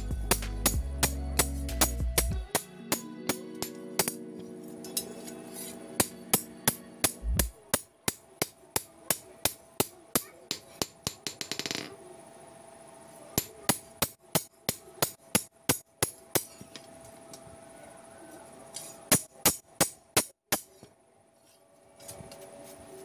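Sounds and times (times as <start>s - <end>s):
hammer striking steel on anvil: 0.0s - 4.2s, 4.8s - 11.8s, 13.4s - 16.7s, 18.8s - 20.9s.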